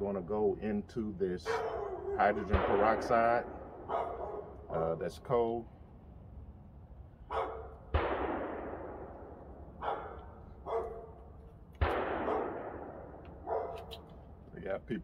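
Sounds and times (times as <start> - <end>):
dog barking: 1.4 - 2.5, 3.9 - 4.6, 7.3 - 7.8, 9.8 - 11.2, 12.2 - 12.6, 13.4 - 13.9
distant gunshots echoing: 1.5 - 4.8, 7.3 - 13.8.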